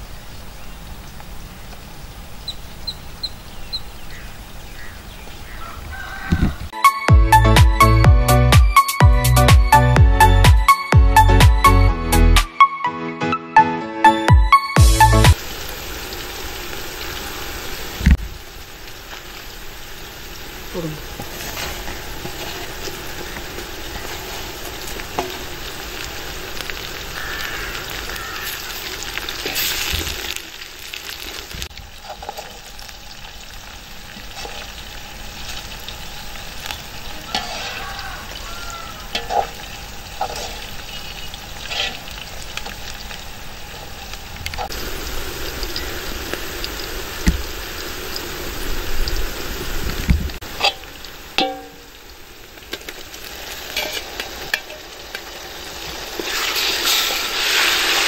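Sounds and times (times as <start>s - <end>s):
food sizzling in oil: 14.8s - 58.0s
metal spoon scraping pot: 37.3s - 37.8s, 39.1s - 39.6s, 40.2s - 40.7s, 41.6s - 42.1s.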